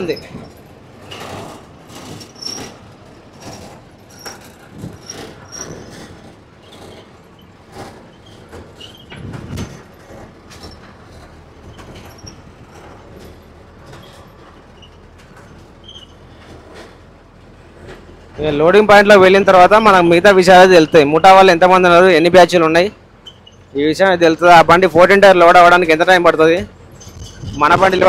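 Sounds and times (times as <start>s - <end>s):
lorry cab rattling and knocking: 0.0s - 28.0s.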